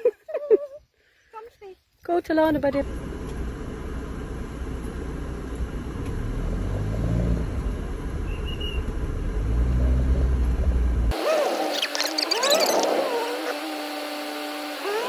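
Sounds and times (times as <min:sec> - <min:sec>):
road rumble: 0:02.3 - 0:13.6
vehicle engine inside cab: 0:02.8 - 0:15.0.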